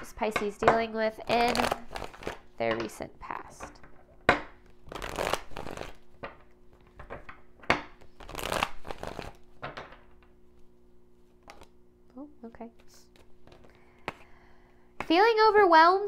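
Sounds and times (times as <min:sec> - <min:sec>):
cards being shuffled: 0:01.2 - 0:02.5, 0:04.6 - 0:09.6, 0:10.6 - 0:11.8, 0:12.7 - 0:14.2.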